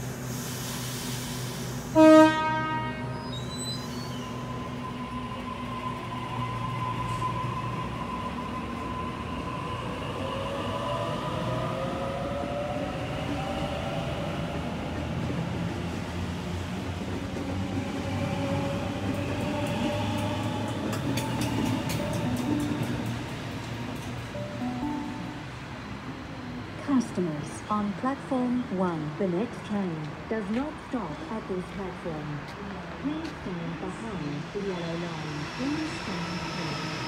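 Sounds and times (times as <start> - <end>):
electric train rumbling: 0.0 - 37.0
train horn blast: 1.9 - 3.2
train wheel clicks: 20.1 - 24.3.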